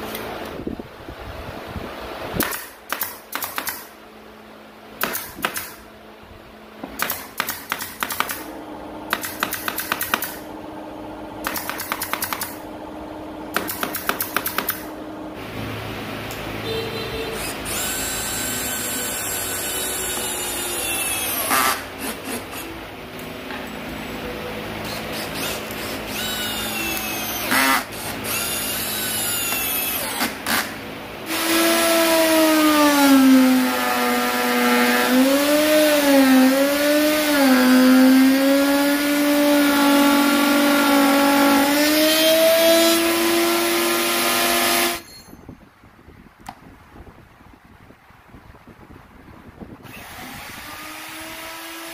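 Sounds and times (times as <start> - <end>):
router whining: 17.2 - 22.9, 24.2 - 45.1, 49.8 - 51.9
cordless drill driving screws: 17.4 - 22.7, 24.8 - 45.1.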